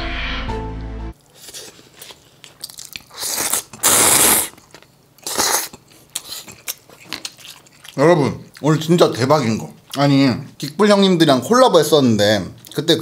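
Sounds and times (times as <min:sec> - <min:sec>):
loud slurping noodles: 0:03.1 - 0:04.6, 0:05.2 - 0:05.7.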